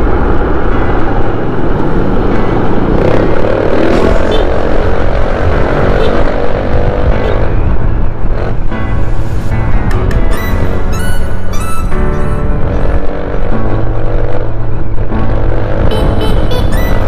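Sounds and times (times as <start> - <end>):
traffic: 0.0 - 17.0
wind rumble: 0.0 - 17.0
motor scooter engine: 15.4 - 17.0.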